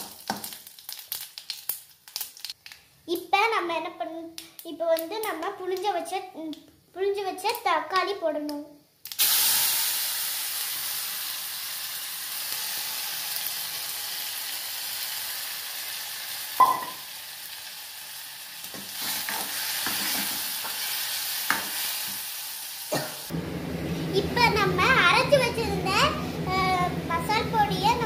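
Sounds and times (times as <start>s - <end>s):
tomatoes sizzling in hot oil: 0.0s - 2.6s, 9.1s - 28.0s
sharp metal clank: 16.6s - 17.0s.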